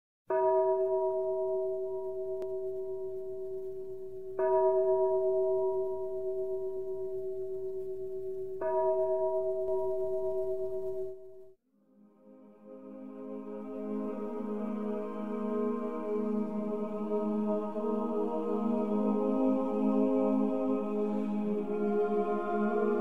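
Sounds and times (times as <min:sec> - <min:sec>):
resonant bell ringing: 0:00.3 - 0:11.4.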